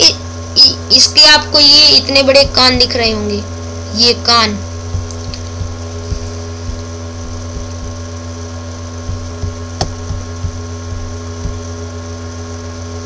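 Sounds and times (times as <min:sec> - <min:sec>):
electrical hum: 0:00.0 - 0:13.0
steady tones: 0:01.6 - 0:03.9, 0:04.5 - 0:11.7
faint low knocks: 0:02.4 - 0:03.0, 0:04.9 - 0:08.1, 0:09.0 - 0:11.7.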